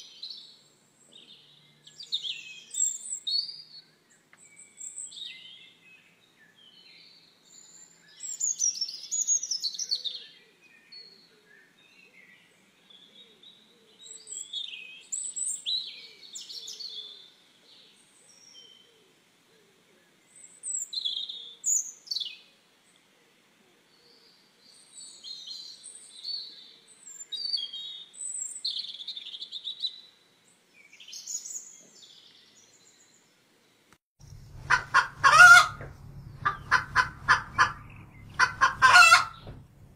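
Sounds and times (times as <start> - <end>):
chicks peeping: 34.2 - 39.9.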